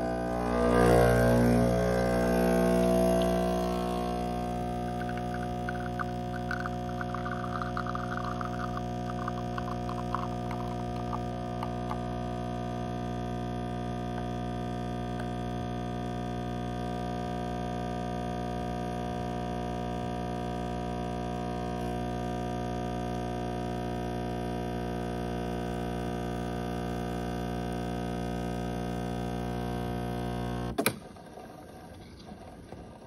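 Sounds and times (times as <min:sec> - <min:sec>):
espresso stream into cup: 0:00.0 - 0:15.4
espresso machine pump humming: 0:00.0 - 0:15.9.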